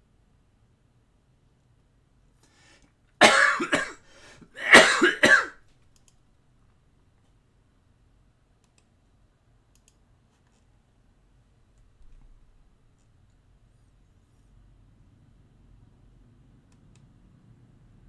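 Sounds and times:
man coughing: 0:03.2 - 0:05.6.

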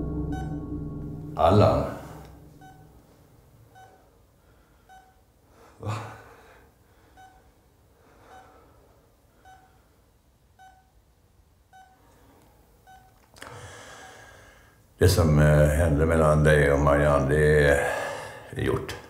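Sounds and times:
patient monitor beeping: 0:00.0 - 0:01.5, 0:02.4 - 0:03.0, 0:03.7 - 0:04.0, 0:04.8 - 0:05.2, 0:07.1 - 0:07.5, 0:08.2 - 0:08.6, 0:09.4 - 0:09.8, 0:10.6 - 0:11.0, 0:11.7 - 0:12.0, 0:12.9 - 0:13.2
loud short sound: 0:00.0 - 0:03.1.

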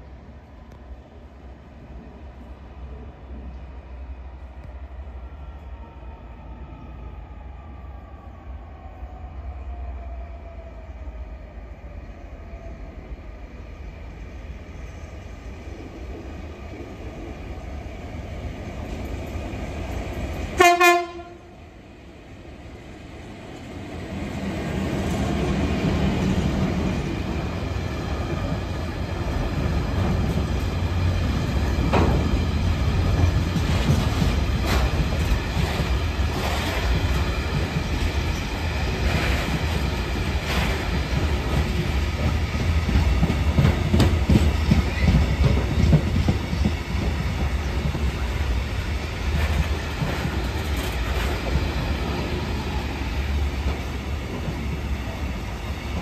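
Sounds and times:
freight train passing: 0:00.0 - 0:56.0
locomotive horn blast: 0:20.6 - 0:21.6.

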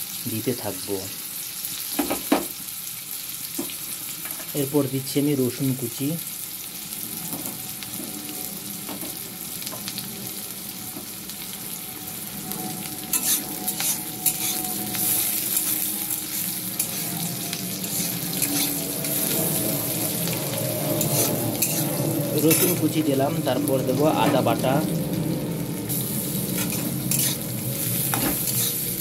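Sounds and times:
garlic and onion sizzling in oil: 0:00.0 - 0:29.0
metal spatula scraping pan: 0:13.0 - 0:22.9, 0:26.5 - 0:27.4.

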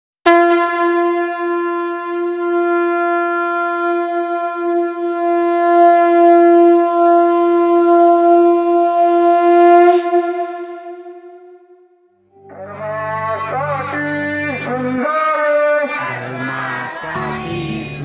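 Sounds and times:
conch shell blown: 0:00.3 - 0:13.7, 0:17.0 - 0:18.0.

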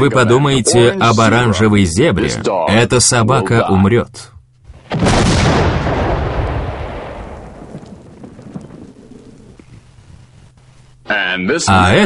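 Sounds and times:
explosion blast: 0:04.8 - 0:09.8.

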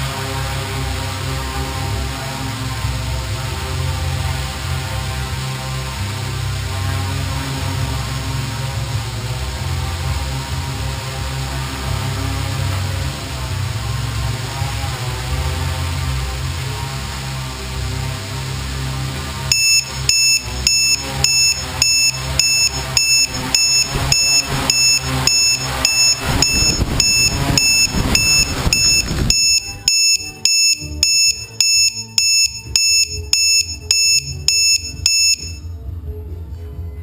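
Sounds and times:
steady whirring: 0:01.5 - 0:35.6
electronic alarm beeping: 0:19.5 - 0:35.7.

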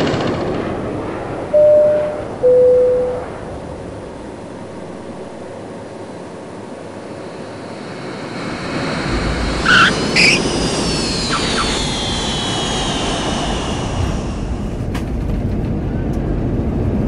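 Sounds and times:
jet engine whine: 0:00.0 - 0:17.0
jet rumble: 0:00.0 - 0:17.0.

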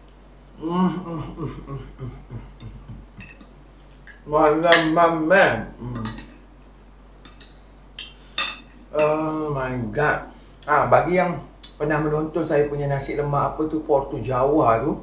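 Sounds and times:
cutlery clinking on ceramic plate: 0:03.2 - 0:03.6, 0:06.0 - 0:06.4, 0:07.2 - 0:09.1.

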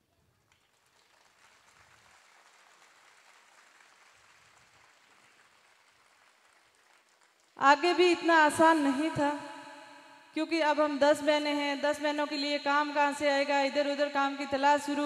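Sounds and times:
faint audience applause: 0:00.0 - 0:07.6.

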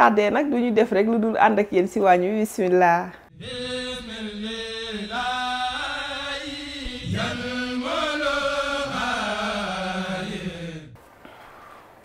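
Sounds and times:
person chanting: 0:03.3 - 0:11.0.

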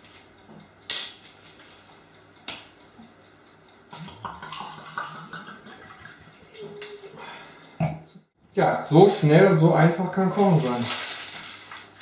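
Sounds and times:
wine gurgling into a glass: 0:04.0 - 0:06.2.

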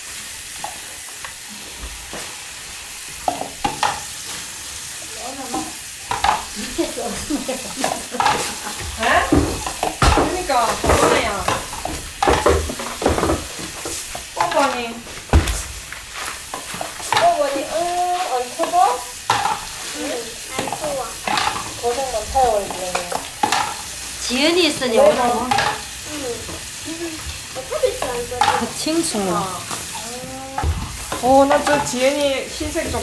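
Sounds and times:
cabbage leaves rustling and squelching: 0:12.8 - 0:21.0.

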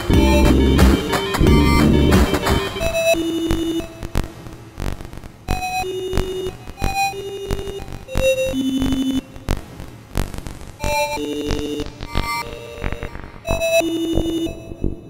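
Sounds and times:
sparse electronic music: 0:00.0 - 0:04.2.

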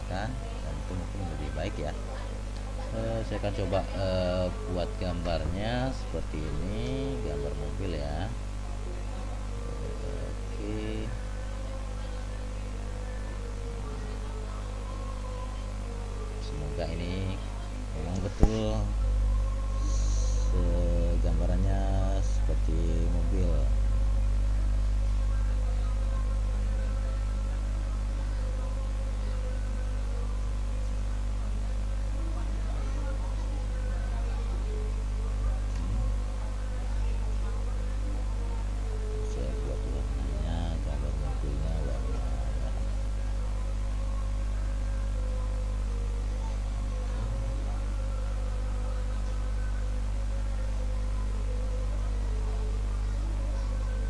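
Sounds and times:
low electrical mains hum: 0:00.0 - 0:54.0.

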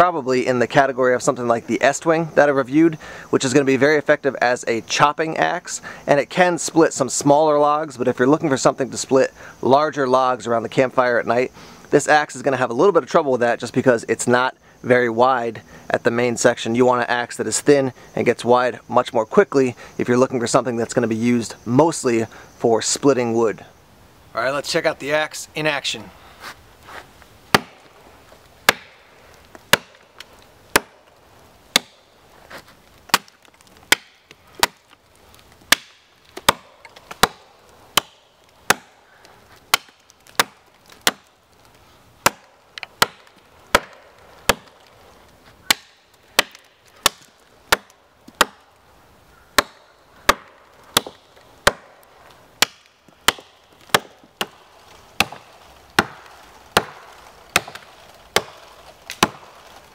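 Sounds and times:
axe chopping wooden log: 0:27.5 - 0:27.9, 0:28.6 - 0:29.0, 0:29.7 - 0:30.1, 0:30.7 - 0:31.0, 0:31.7 - 0:32.0, 0:33.1 - 0:34.9, 0:35.7 - 0:39.0, 0:39.7 - 0:41.3, 0:42.2 - 0:44.8, 0:45.6 - 0:48.7, 0:49.6 - 0:52.0, 0:52.6 - 0:54.6, 0:55.2 - 0:59.4.

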